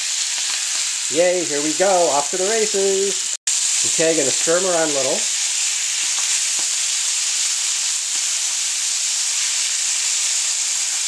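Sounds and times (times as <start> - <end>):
livers sizzling in oil: 0.0 - 11.0.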